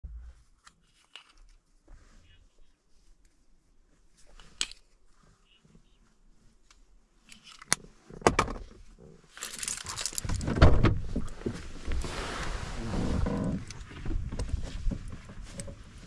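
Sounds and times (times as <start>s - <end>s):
outside noise: 0.0s - 16.0s
objects handled clicks and knocks: 0.6s - 1.6s, 4.3s - 4.9s, 6.7s - 11.4s
car door unlatching and opening: 10.2s - 11.2s.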